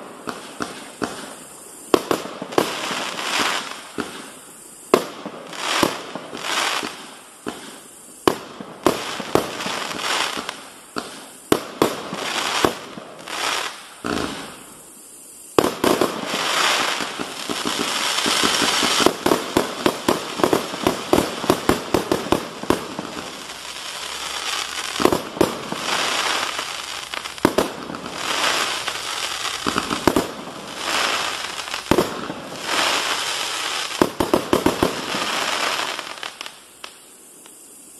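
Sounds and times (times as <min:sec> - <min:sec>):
steady hiss: 0:00.0 - 0:37.9.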